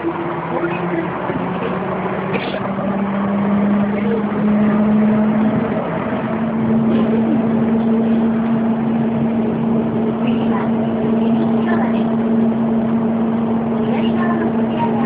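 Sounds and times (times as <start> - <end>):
train running with hum: 0.0 - 15.0.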